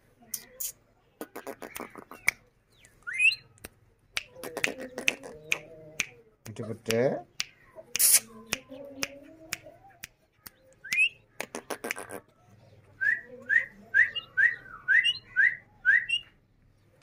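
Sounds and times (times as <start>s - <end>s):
sharp clicks: 3.6s - 12.2s.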